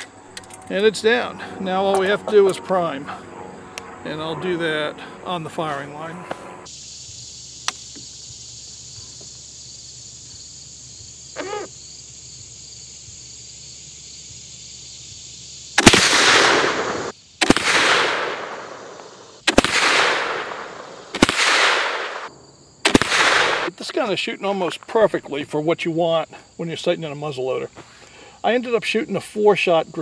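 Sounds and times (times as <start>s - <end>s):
high drone of insects: 0.0s - 30.0s
rifle shots: 15.8s - 23.7s.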